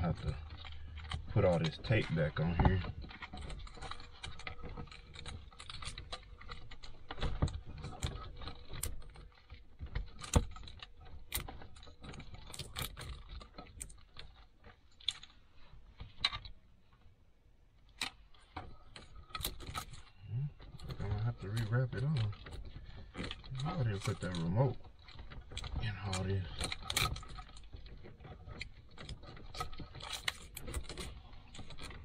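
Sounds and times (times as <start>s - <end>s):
hands handling wiring and tools: 0.0s - 32.0s.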